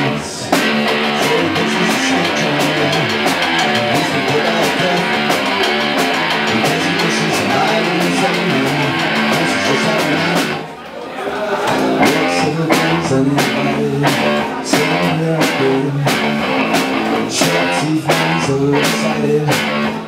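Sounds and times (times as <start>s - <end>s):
drum kit: 0.0s - 10.7s, 11.7s - 20.0s
electric bass guitar: 0.0s - 10.7s, 11.7s - 20.0s
fast cymbal hits: 0.5s - 10.6s.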